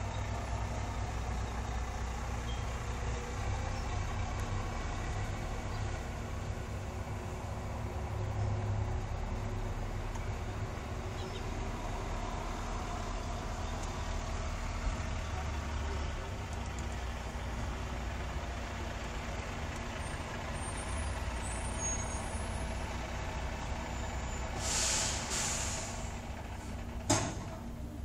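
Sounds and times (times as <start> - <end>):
engine running: 0.0 - 28.0
short hiss: 24.6 - 26.1.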